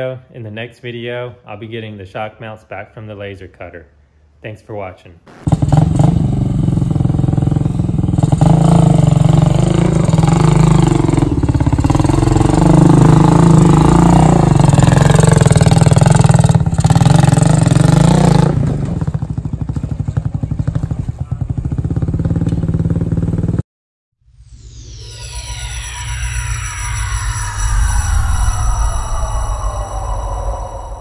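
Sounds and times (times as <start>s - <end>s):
dirt bike engine revving: 5.3s - 20.8s.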